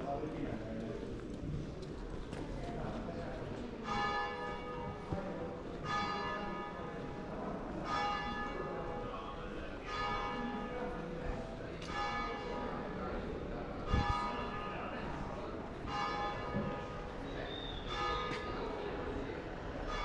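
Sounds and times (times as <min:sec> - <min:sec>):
church bell tolling: 0:03.8 - 0:19.0, 0:19.8 - 0:20.0.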